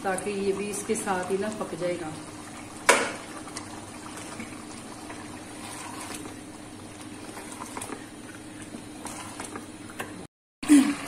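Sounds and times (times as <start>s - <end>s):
gravy bubbling in a pot: 0.0s - 11.0s
wooden spoon stirring: 3.4s - 9.8s.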